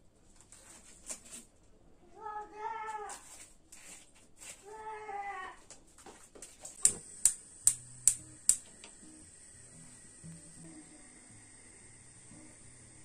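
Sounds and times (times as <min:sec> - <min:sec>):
gas hob igniter clicking: 0:06.8 - 0:13.0.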